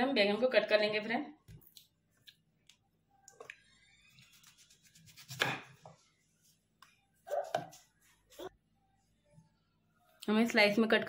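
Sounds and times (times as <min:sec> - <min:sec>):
knife crackling through eggplant: 0:04.2 - 0:05.7.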